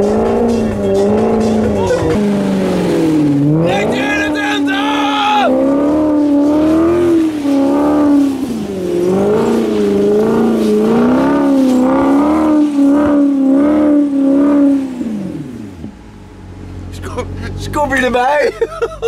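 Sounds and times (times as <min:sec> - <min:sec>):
car engine revving high: 0:00.0 - 0:19.0
wheels spinning on wet grass: 0:02.8 - 0:15.7.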